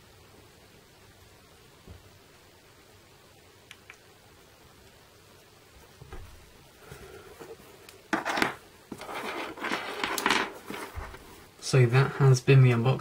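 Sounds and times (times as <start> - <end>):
sharp scrape: 8.9 - 11.2.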